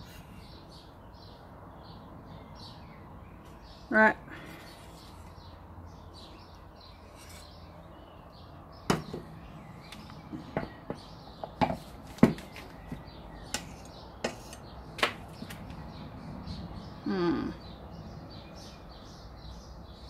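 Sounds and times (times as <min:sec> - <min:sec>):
palette knife scraping and knocking: 0:07.0 - 0:07.6, 0:13.5 - 0:14.7.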